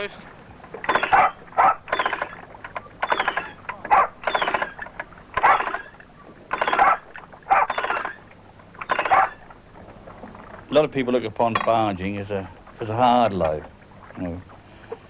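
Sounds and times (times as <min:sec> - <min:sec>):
halyard gear creaking and clicking: 0:00.6 - 0:11.9.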